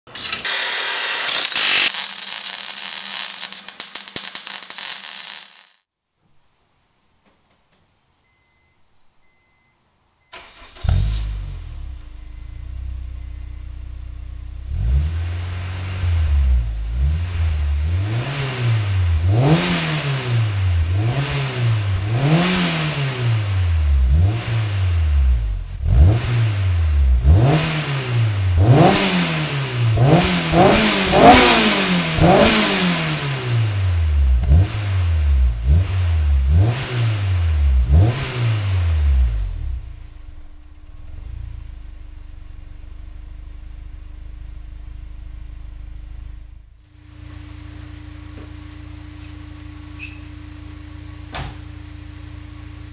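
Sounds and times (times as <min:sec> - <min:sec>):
car engine revving: 0:13.8 - 0:49.3.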